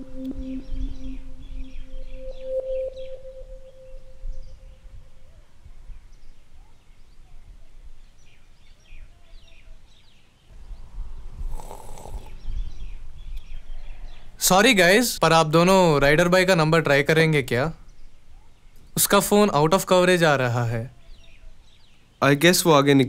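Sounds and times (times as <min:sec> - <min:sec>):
background music tone: 0:00.0 - 0:05.7
low wind rumble: 0:00.0 - 0:17.0
small birds chirping: 0:00.0 - 0:23.0.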